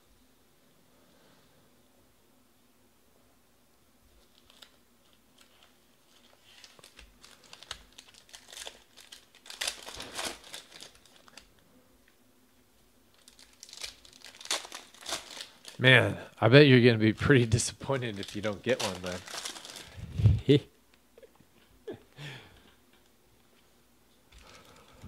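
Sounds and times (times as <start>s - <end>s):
foil wrapper crinkling and tearing: 4.2s - 11.6s, 13.1s - 15.9s, 17.4s - 20.0s.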